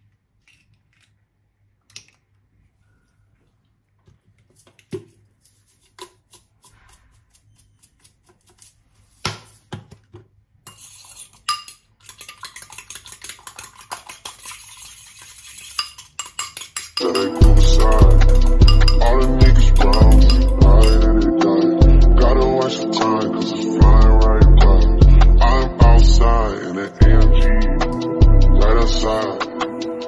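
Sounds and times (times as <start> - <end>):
utensil stirring in ceramic bowl: 4.6 - 8.9, 10.7 - 21.2
cutlery clinking against dishes: 11.4 - 13.9, 15.7 - 17.5, 18.6 - 21.1.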